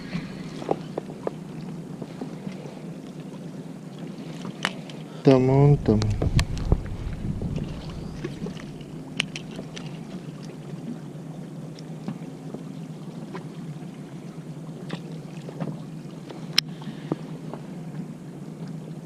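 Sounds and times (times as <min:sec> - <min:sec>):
boat engine idling: 0:05.3 - 0:11.4
brief low rumble: 0:05.4 - 0:09.9.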